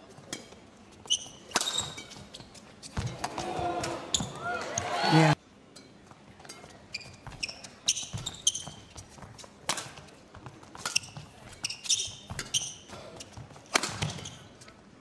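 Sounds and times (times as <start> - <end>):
shoes squeaking on court: 0.1 - 5.4, 6.0 - 14.8
rackets striking shuttlecock: 1.5 - 2.2, 13.7 - 14.4.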